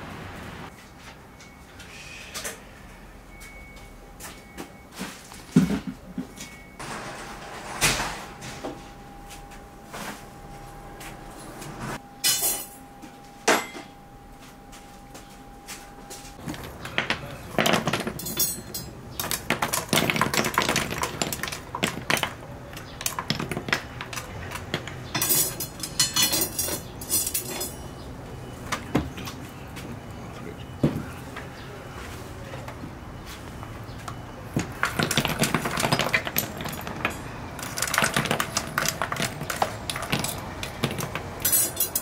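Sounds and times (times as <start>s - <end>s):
faint steady whine: 7.8s - 17.5s
dishes and utensils clattering: 13.5s - 14.0s, 16.4s - 28.0s, 34.6s - 42.0s.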